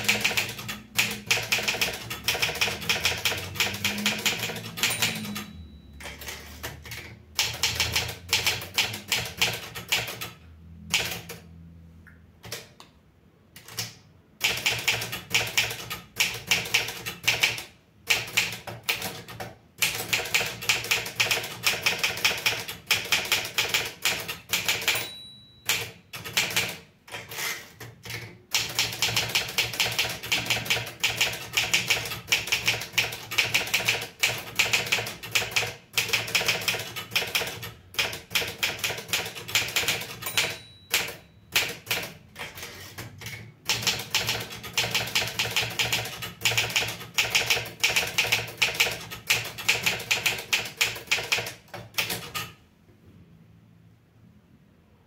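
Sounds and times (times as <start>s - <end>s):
typewriter typing: 0.0s - 11.5s, 13.6s - 52.6s
typewriter margin bell ringing: 2.7s - 6.6s, 24.6s - 26.7s, 39.7s - 41.9s.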